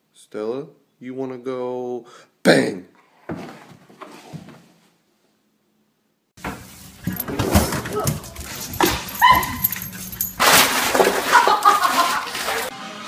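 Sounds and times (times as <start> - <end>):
dog barking and whimpering: 8.0 - 10.4
dog yelp: 8.5 - 10.4.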